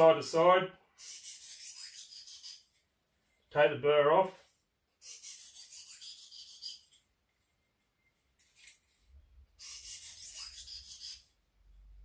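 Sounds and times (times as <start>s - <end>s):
sharpening stone scraping knife: 1.0s - 2.7s, 5.0s - 7.0s, 9.6s - 11.3s.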